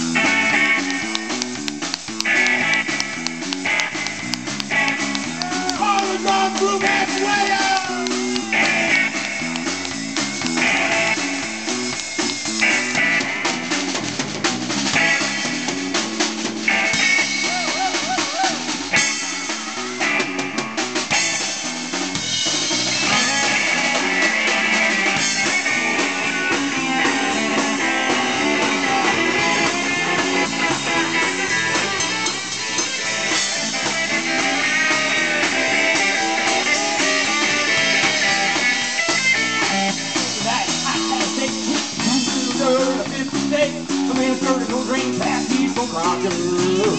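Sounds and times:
amplified electric guitar: 0:00.0 - 0:46.9
drum kit beating: 0:00.0 - 0:46.9
rock band playing: 0:00.0 - 0:46.9.

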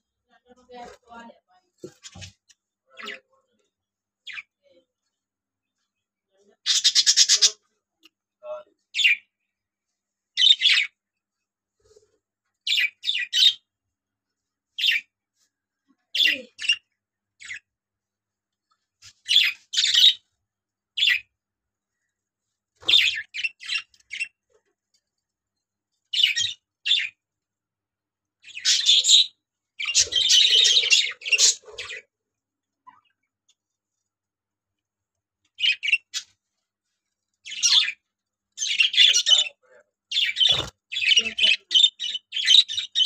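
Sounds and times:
budgerigars chirping: 0:06.7 - 0:07.5, 0:19.3 - 0:20.2, 0:28.4 - 0:32.0, 0:37.5 - 0:38.0, 0:40.1 - 0:43.0.

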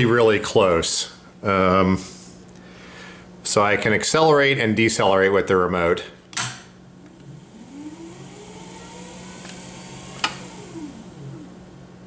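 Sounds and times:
electrical hum: 0:00.0 - 0:12.0
electric motor whining: 0:07.1 - 0:11.6.

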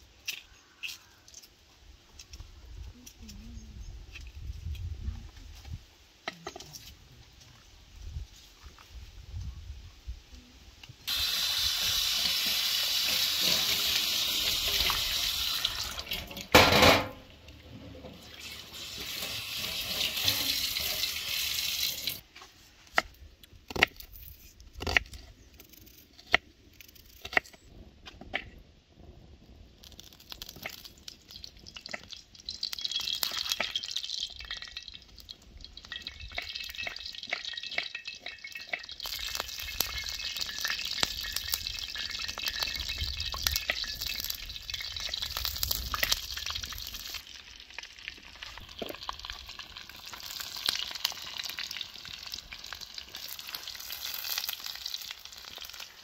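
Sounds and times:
wood fire crackling: 0:11.0 - 0:17.6, 0:18.2 - 0:22.2, 0:29.0 - 0:56.0.

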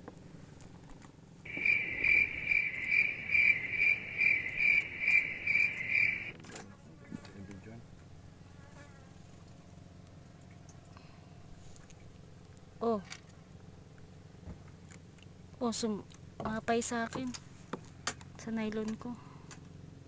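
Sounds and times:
insect chirping: 0:01.5 - 0:06.3.

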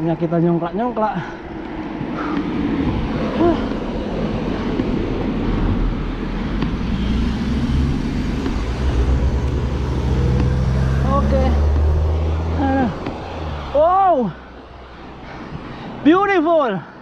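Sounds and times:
wind rush: 0:01.4 - 0:13.8
low engine hum: 0:01.4 - 0:16.0
bicycle rolling noise: 0:01.6 - 0:13.4.

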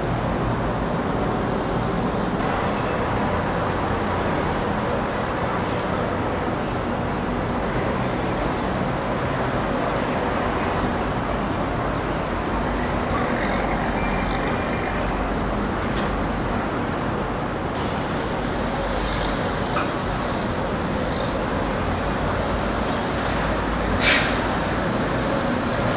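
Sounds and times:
city traffic rumble: 0:00.0 - 0:25.9
short hiss: 0:24.0 - 0:24.4.

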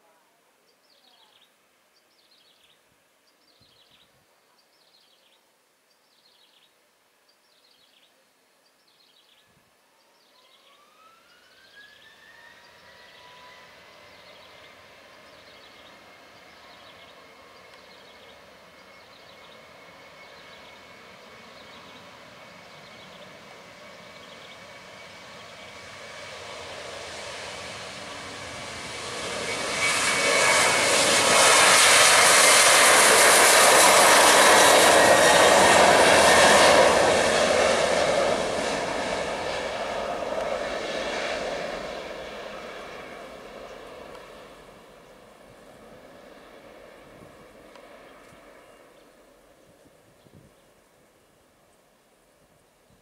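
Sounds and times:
jet engine noise: 0:10.6 - 0:51.3.

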